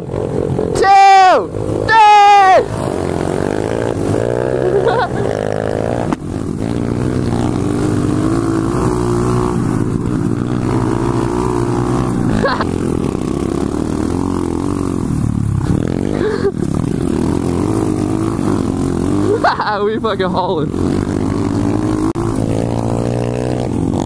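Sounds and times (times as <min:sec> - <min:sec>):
motorbike engine revving hard: 0:00.0 - 0:24.0.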